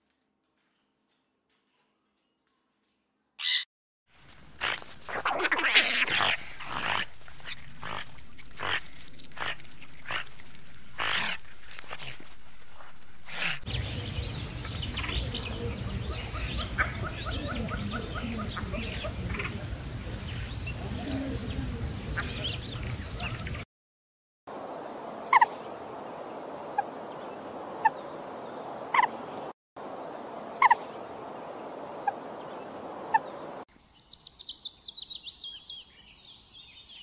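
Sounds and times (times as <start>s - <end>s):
macaws squawking: 3.4s - 3.6s, 7.8s - 10.2s, 11.0s - 12.2s, 13.3s - 23.6s, 28.9s - 29.2s.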